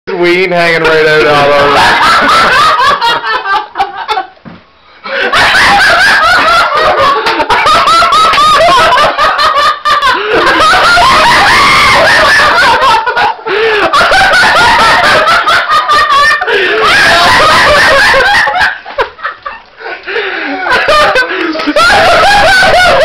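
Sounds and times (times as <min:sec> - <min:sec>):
man laughing loudly: 0:05.1 - 0:23.0.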